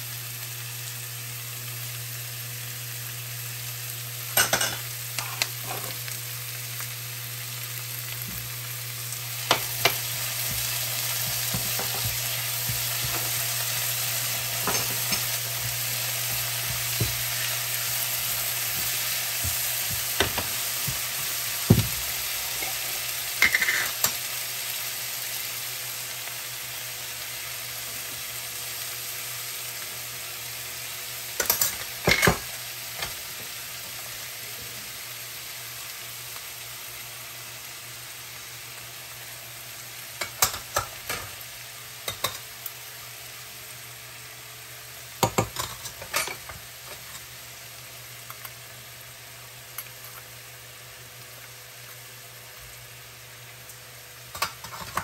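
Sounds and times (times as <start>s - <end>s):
vegetables sizzling in a pan: 0.0s - 55.0s
utensils clattering against a pan: 14.6s - 15.4s, 23.4s - 24.2s, 42.1s - 42.4s, 45.2s - 47.2s, 54.3s - 55.0s.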